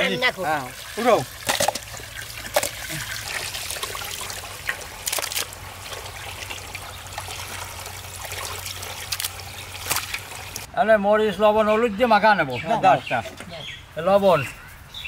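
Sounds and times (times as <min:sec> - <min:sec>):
water trickling and dripping: 0:00.0 - 0:10.7
sharp water splashes: 0:00.4 - 0:10.7.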